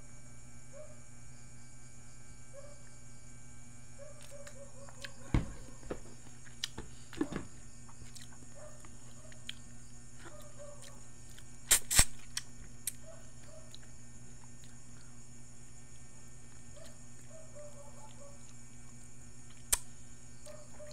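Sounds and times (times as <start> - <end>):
steady hum: 0.0 - 20.9
person chewing: 4.2 - 15.2.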